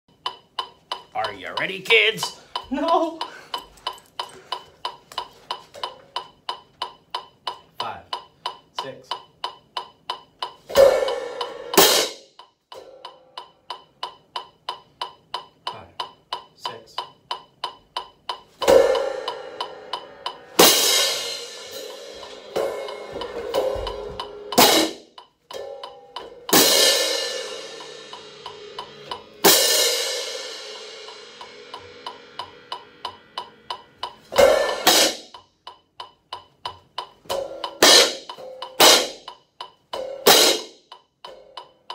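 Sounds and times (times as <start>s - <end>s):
fast metronome clicks: 0.1s - 23.3s, 24.5s - 41.9s
hand cymbals crashing: 10.7s - 13.4s, 18.6s - 25.0s, 25.6s - 35.4s, 37.3s - 39.3s, 40.0s - 40.8s.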